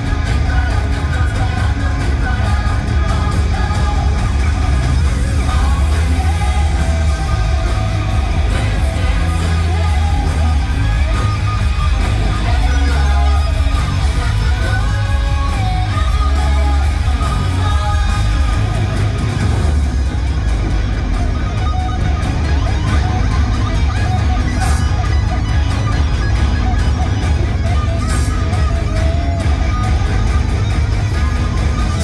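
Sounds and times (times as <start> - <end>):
vocals: 0.0 - 20.4
live rock music: 0.0 - 32.0.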